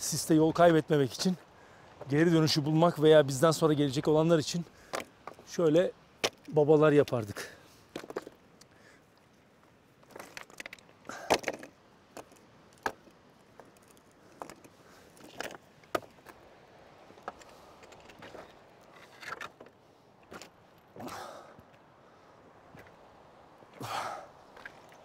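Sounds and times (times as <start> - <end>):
stones knocking and clinking: 8.0 - 8.4, 10.0 - 16.4
stones crunching underfoot: 10.0 - 16.5, 17.1 - 21.1.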